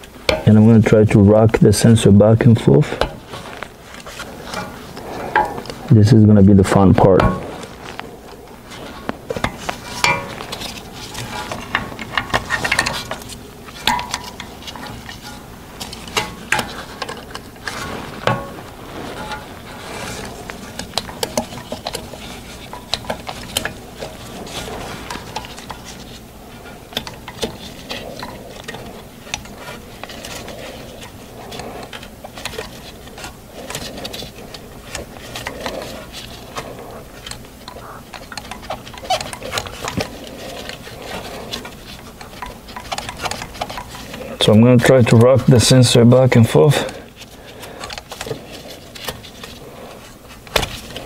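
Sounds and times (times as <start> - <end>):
metallic clicks and scrapes: 7.1 - 45.8.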